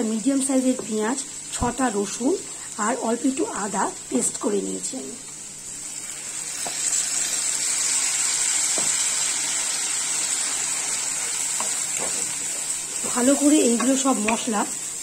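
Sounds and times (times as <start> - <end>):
food sizzling in hot oil: 0.0 - 15.0
spatula taps: 13.0 - 14.5.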